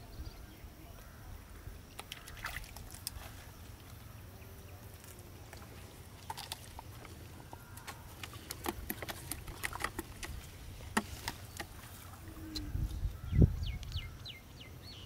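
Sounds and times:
fishing tackle taps and rustles: 5.5 - 12.7.

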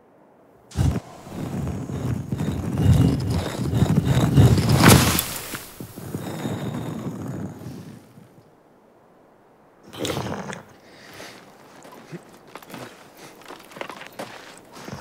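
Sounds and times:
stone grinding rumble: 0.7 - 8.0.

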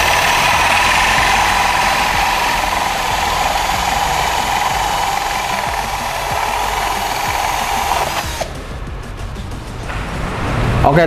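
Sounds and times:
cordless drill boring through plastic: 0.0 - 8.5.

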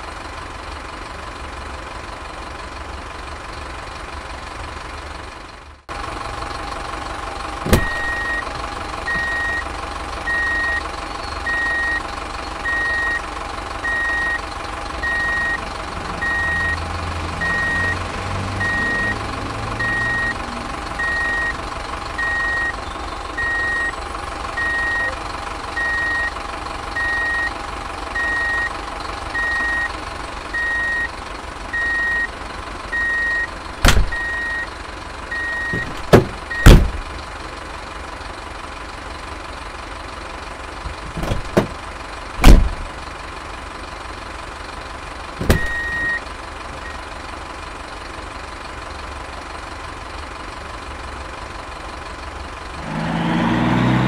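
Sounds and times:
engine hum: 0.0 - 54.0
truck reversing alarm beeping: 7.7 - 14.4, 15.0 - 21.6, 22.2 - 25.2, 25.8 - 26.4, 27.0 - 27.6, 28.2 - 37.0, 42.4 - 42.7, 45.4 - 47.1
loud sharp knocks: 35.8 - 37.0, 41.1 - 41.8.

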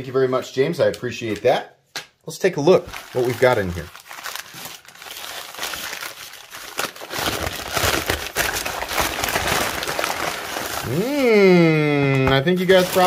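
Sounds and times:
paper crumpling by hand: 2.8 - 13.0.

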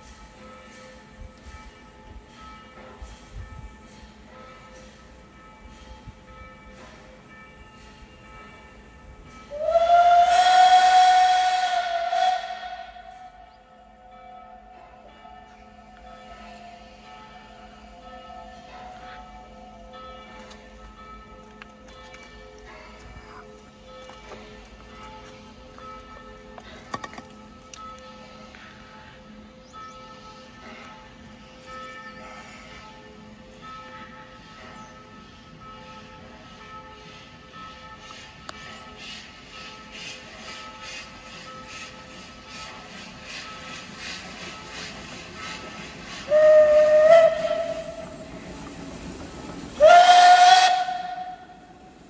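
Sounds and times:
steam locomotive whistle: 9.5 - 13.7, 45.4 - 48.4, 49.8 - 51.8.

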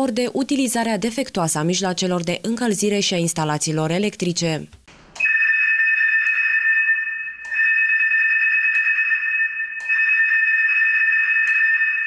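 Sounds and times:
fire alarm two-tone note: 5.2 - 12.0.

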